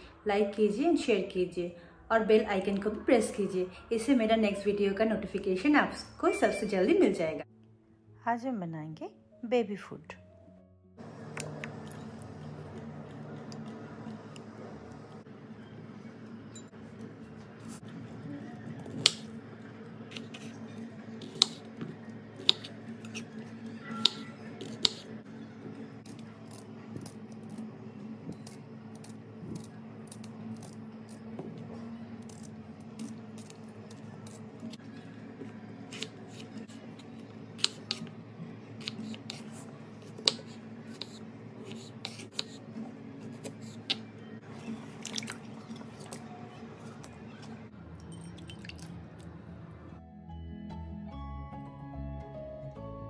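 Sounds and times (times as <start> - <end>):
steady low hum: 11.0 - 50.1
carrot peeled by hand: 20.1 - 21.7, 38.8 - 42.6
knife chopping on wooden board: 21.2 - 21.6, 38.8 - 42.6.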